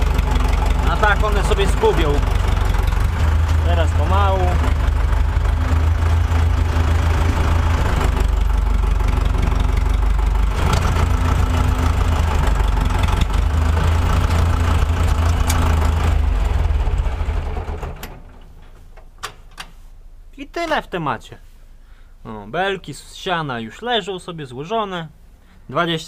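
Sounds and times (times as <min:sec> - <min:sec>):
tractor diesel engine rumbling: 0:00.0 - 0:20.1.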